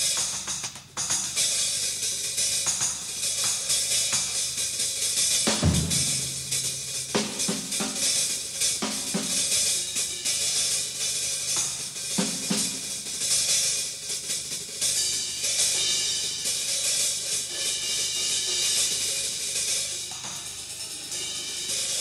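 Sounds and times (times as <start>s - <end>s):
ride cymbals and hi-hat: 0.0s - 22.0s
drum strokes: 5.2s - 9.7s.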